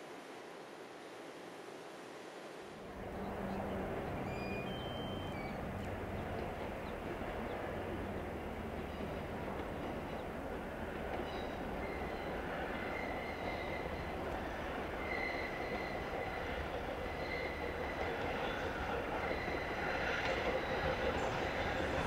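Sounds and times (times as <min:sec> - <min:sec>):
train rumbling along track: 0:02.8 - 0:22.0
high wheel squeal: 0:04.2 - 0:05.6.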